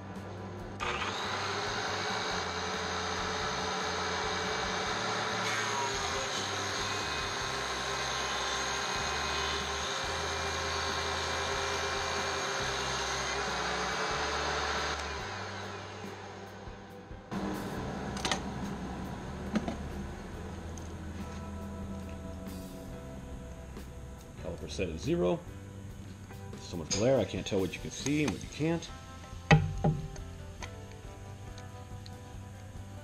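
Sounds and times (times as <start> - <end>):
thickness planer running: 0.0 - 31.5
dust collector running: 0.0 - 33.0
board feeding through planer hissing: 0.8 - 16.2.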